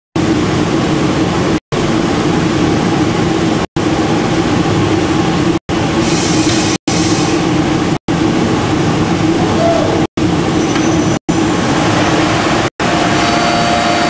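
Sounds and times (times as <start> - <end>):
lathe machine hum: 11.3 - 14.0.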